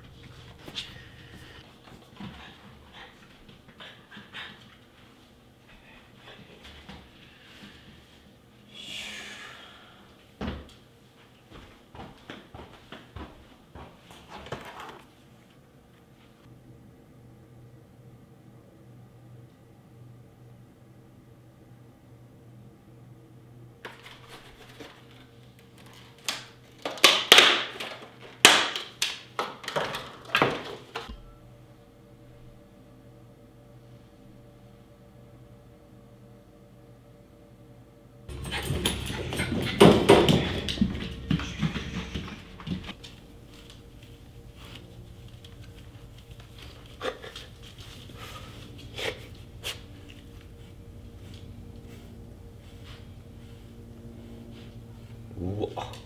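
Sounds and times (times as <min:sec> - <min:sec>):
footsteps on wooden floor: 0:11.5 - 0:15.0, 0:38.3 - 0:55.4
dog paws against metal fence: 0:38.3 - 0:42.9.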